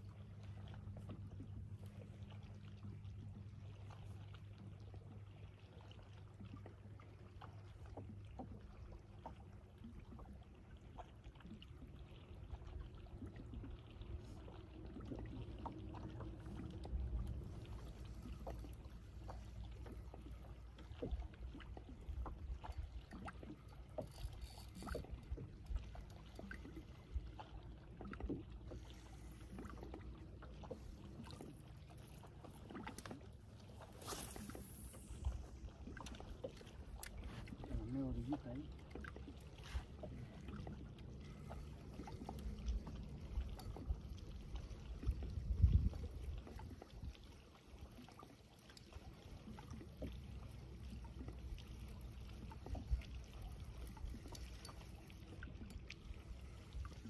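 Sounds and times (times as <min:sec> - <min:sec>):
water moving around boat: 0:00.0 - 0:57.0
knocks and clicks against hull: 0:00.7 - 0:03.5, 0:06.4 - 0:11.8, 0:13.1 - 0:34.3, 0:35.7 - 0:47.3.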